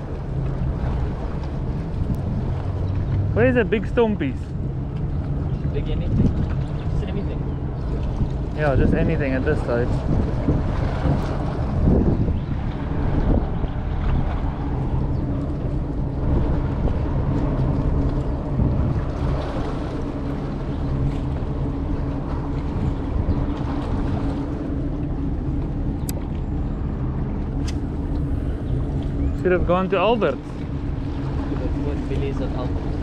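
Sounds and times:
boat engine humming: 0.0 - 33.0
wind buffeting microphone: 0.0 - 33.0.

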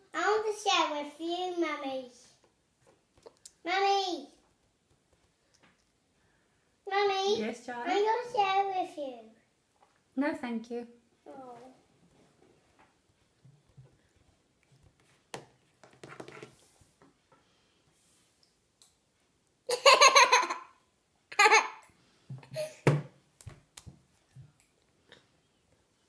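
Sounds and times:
toddler laughing: 19.7 - 21.8.

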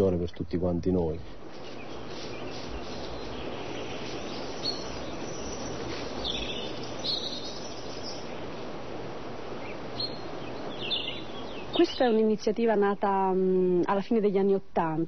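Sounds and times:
bird chirps: 1.4 - 8.8, 9.5 - 13.1.

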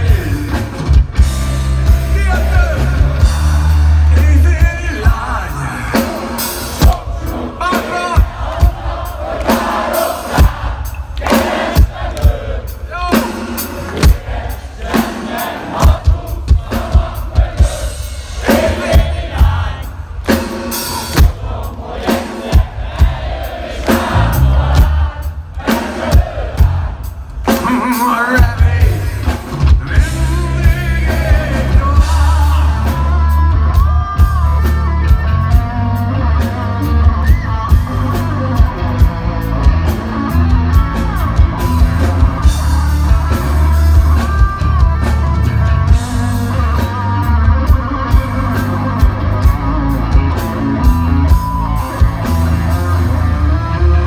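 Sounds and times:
man singing: 0.0 - 1.0, 1.8 - 8.4, 27.5 - 39.0
bass and electric guitars: 0.0 - 14.8, 15.8 - 54.0
drum kit hits: 0.0 - 33.4.

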